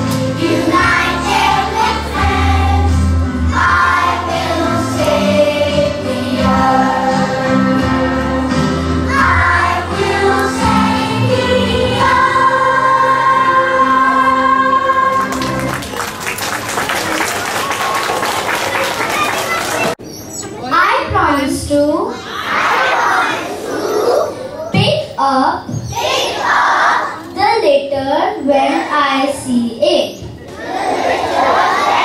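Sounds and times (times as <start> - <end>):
children singing in unison: 0.0 - 15.6, 25.9 - 27.2, 30.6 - 32.0.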